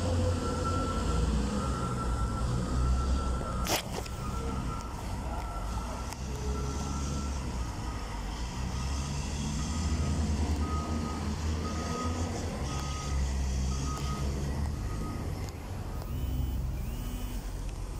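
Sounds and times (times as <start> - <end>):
diesel engine rumble: 0.0 - 17.9
reversing alarm beeping: 0.1 - 17.6.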